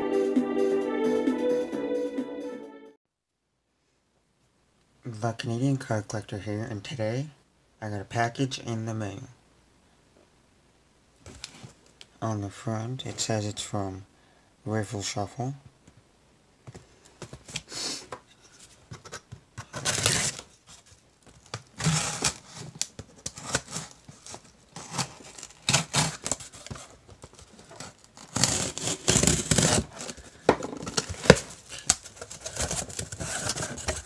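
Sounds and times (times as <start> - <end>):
cardboard flaps scraping: 18.6 - 34.0
packing tape tearing: 19.1 - 20.5, 21.4 - 34.0.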